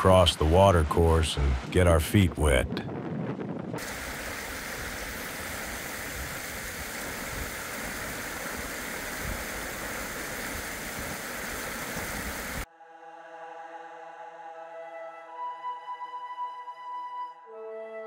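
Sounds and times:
river rushing: 3.8s - 12.7s.

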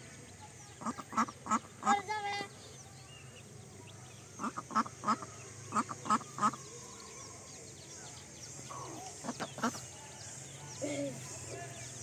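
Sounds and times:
duck quacking: 0.8s - 2.1s, 4.4s - 6.6s.

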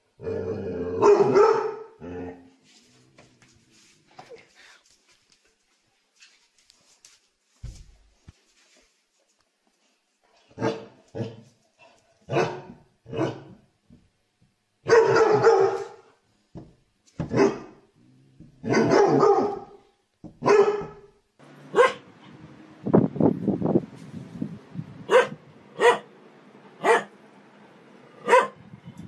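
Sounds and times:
dog barking: 1.0s - 2.0s, 10.6s - 11.4s, 12.3s - 13.6s, 14.8s - 16.1s, 17.3s - 17.8s, 18.6s - 19.8s, 20.4s - 21.1s, 21.7s - 22.1s, 25.1s - 26.1s, 26.8s - 27.1s, 28.2s - 28.6s.

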